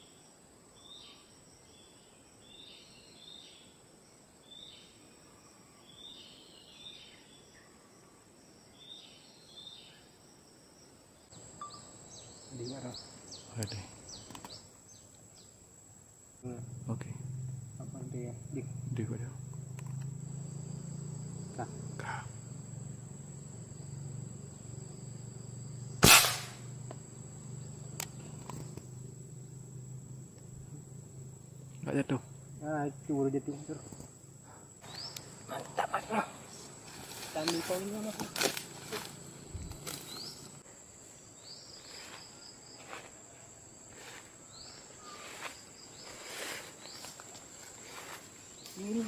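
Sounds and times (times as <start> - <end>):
high insect drone: 0.0 - 49.0
air rifle shot: 26.0 - 26.7
footsteps through leafy undergrowth: 36.6 - 40.5.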